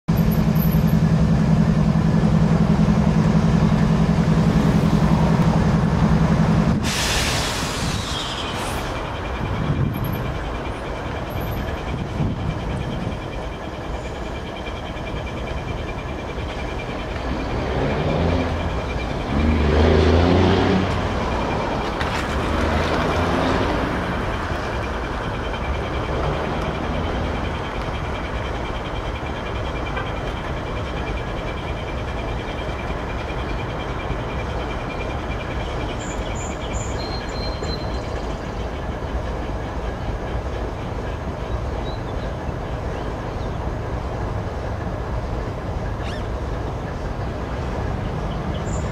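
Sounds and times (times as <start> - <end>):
freight train rumbling: 0.1 - 48.9.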